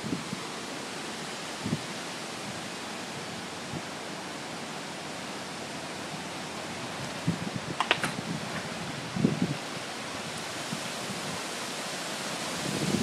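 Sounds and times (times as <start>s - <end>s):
steady hiss of water: 0.0s - 13.0s.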